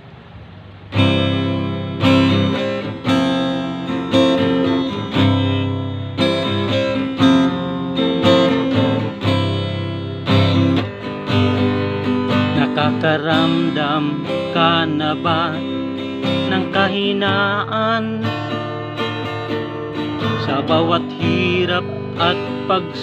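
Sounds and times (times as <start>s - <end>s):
acoustic guitar strummed chords: 0.0s - 23.0s.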